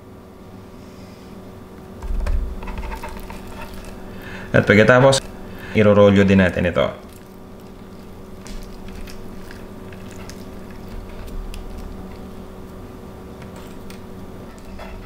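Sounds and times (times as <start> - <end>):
steady low hum: 0.0 - 15.0
soft squishing of raw meat: 2.9 - 14.8.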